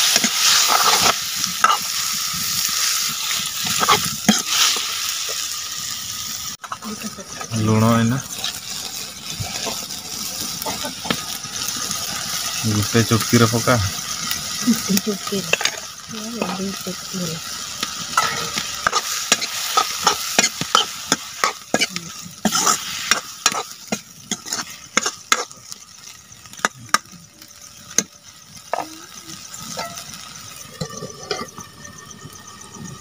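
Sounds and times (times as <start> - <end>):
steady sizzle: 0.0 - 33.0
ladle scraping metal pan: 18.0 - 23.7.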